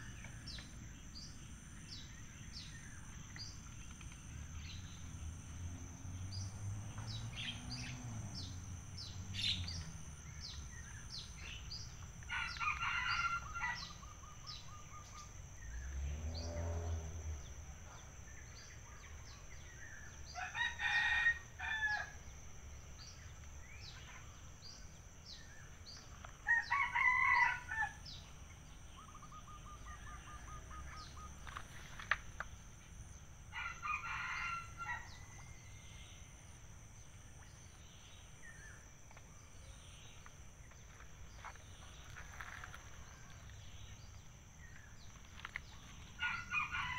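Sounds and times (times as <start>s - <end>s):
high insect drone: 0.0s - 46.9s
rooster crowing: 12.3s - 14.0s, 20.4s - 22.2s, 26.4s - 28.0s, 33.5s - 35.4s, 46.2s - 46.9s.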